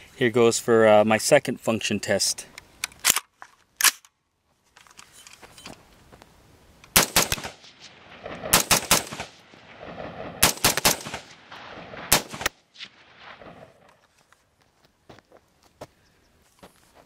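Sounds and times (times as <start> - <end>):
rifle shots with echo: 6.9 - 14.0.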